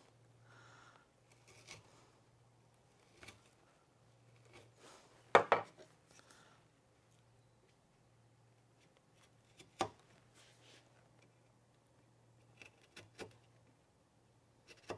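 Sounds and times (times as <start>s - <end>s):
chisel scraping wood: 1.2s - 1.9s, 3.0s - 3.6s, 4.2s - 4.8s, 12.4s - 13.6s.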